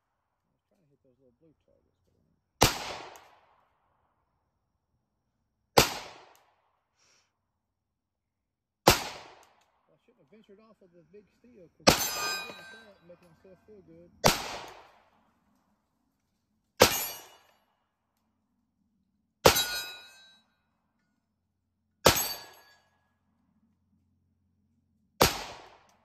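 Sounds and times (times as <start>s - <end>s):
pistol shots: 2.6s - 3.6s, 5.8s - 6.7s, 8.8s - 9.8s, 11.8s - 12.9s, 14.2s - 15.2s, 16.8s - 17.4s, 22.0s - 22.6s, 25.2s - 26.0s
bullet ringing on steel target: 11.8s - 13.3s, 16.8s - 17.8s, 19.4s - 20.8s, 22.0s - 23.1s.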